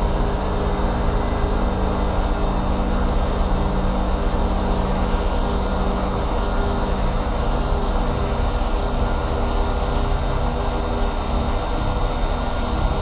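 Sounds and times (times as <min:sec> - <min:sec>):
dense droning noise: 0:00.0 - 0:13.0.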